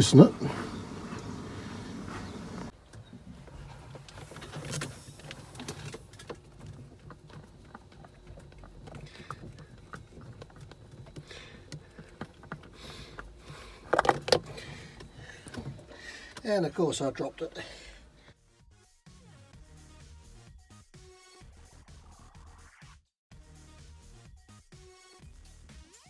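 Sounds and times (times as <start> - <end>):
oil filter clicks and scrapes: 2.2 - 17.5
oil filter clattering when dropped: 5.6 - 16.1.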